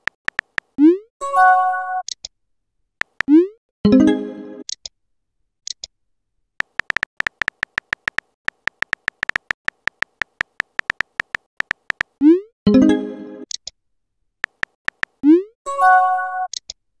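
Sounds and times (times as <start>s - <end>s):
phone keyboard typing clicks: 0.0s - 0.8s, 3.0s - 3.4s, 6.6s - 12.2s, 14.4s - 15.2s.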